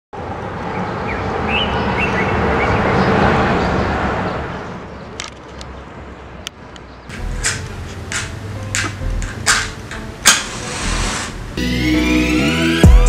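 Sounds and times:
bird chirps: 1.0s - 2.8s
rushing noise: 7.1s - 11.8s.

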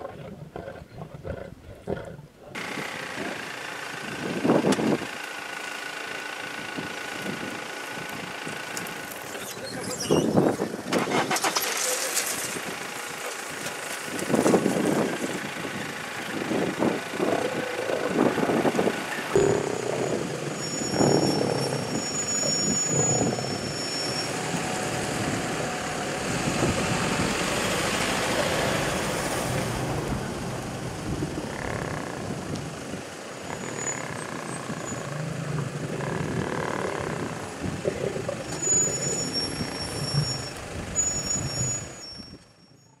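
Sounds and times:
lions growling: 0.0s - 2.6s, 16.9s - 28.7s, 31.3s - 32.6s, 33.4s - 40.6s
vehicles idling: 2.3s - 9.9s, 10.6s - 41.5s.

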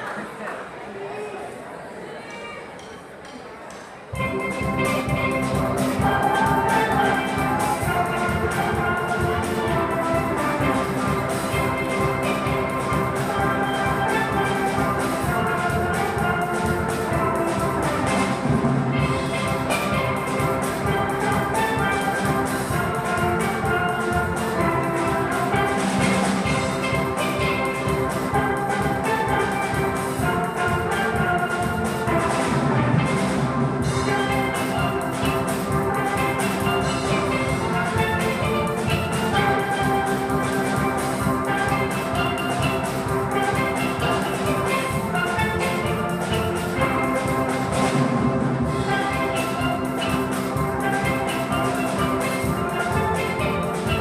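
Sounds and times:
steel pan ensemble playing: 4.1s - 54.0s.

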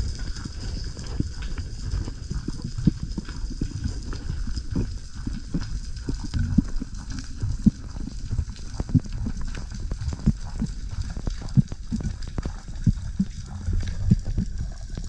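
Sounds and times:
low underwater rumble: 0.0s - 15.0s
underwater thumps and knocks: 4.8s - 15.0s.

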